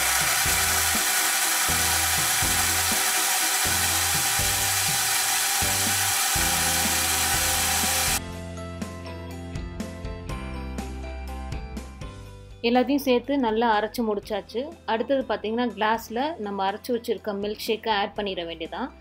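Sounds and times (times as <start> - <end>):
blender motor running: 0.0 - 8.2.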